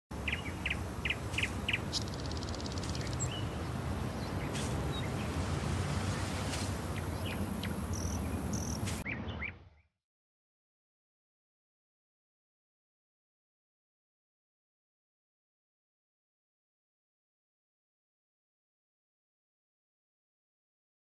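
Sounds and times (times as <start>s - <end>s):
birds chirping: 0.1s - 10.0s.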